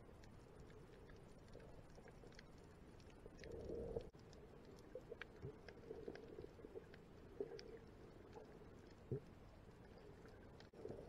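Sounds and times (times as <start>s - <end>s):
small clicks underwater: 0.0s - 11.0s
underwater rumble: 0.0s - 11.0s.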